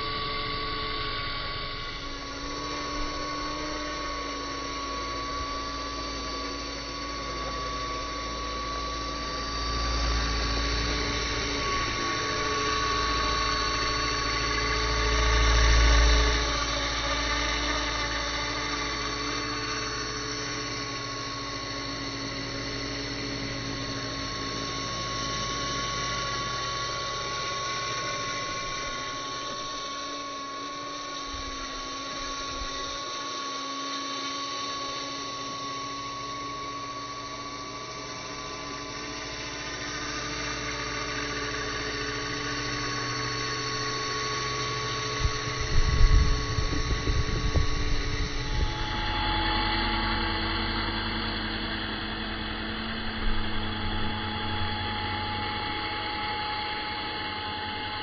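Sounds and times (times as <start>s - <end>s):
electric motor whine: 0.0s - 58.0s
helicopter rotor whir: 0.0s - 58.0s
wind buffeting microphone: 45.2s - 48.8s.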